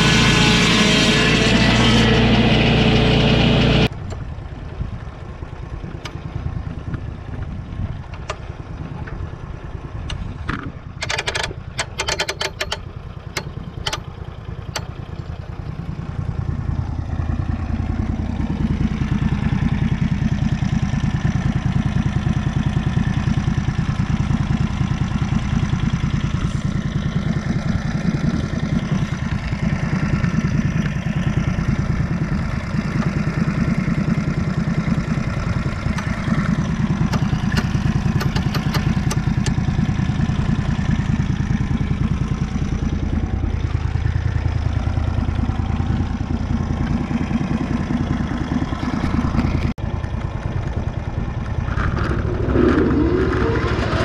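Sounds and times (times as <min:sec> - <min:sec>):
saw blade cutting log: 0:00.0 - 0:03.9
saw engine running: 0:00.0 - 0:03.9
sharp clicks: 0:37.0 - 0:39.6.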